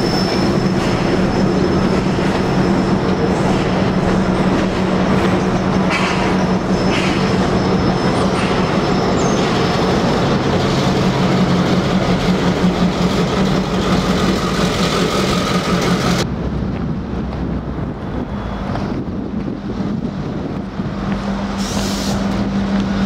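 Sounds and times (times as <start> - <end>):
diesel locomotive engine running: 0.0 - 23.0
outdoor noise: 0.0 - 23.0
train wheels rumbling: 0.0 - 23.0.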